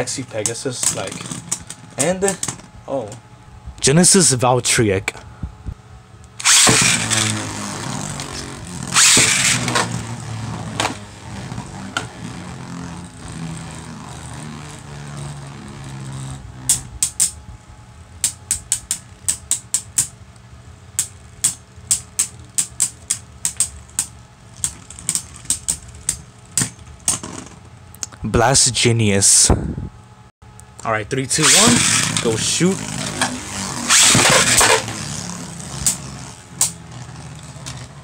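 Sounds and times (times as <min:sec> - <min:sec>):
spinning tops launching rush: 0:06.4 - 0:17.4, 0:31.4 - 0:37.8
spinning tops whirring: 0:06.4 - 0:17.4, 0:31.3 - 0:38.0.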